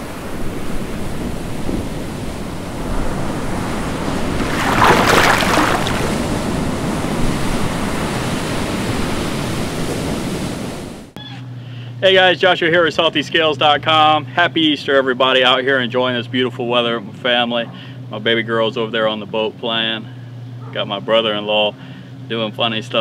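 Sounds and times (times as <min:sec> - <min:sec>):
ocean waves and surf: 0:00.1 - 0:11.0.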